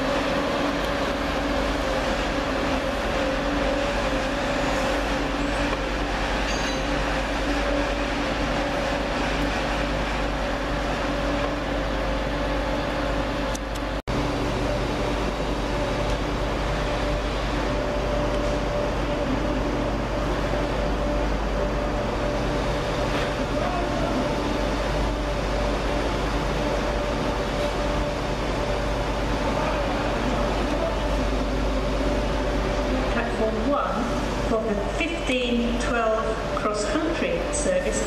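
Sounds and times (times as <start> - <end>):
diesel engine hum: 0.0 - 38.0
diesel train engines droning: 0.0 - 38.0.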